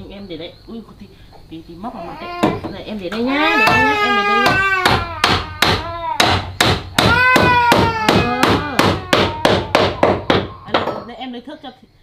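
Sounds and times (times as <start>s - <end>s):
young child crying: 3.3s - 6.3s, 7.0s - 9.8s
hammer striking wooden planks: 3.6s - 10.9s.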